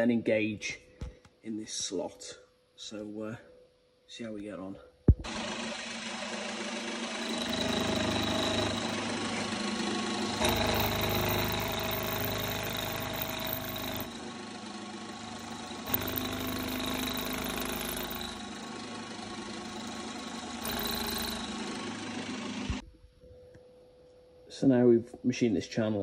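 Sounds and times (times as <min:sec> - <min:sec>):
milling machine cutting metal: 0:07.0 - 0:09.4, 0:10.2 - 0:14.3, 0:15.2 - 0:18.8, 0:19.6 - 0:21.6.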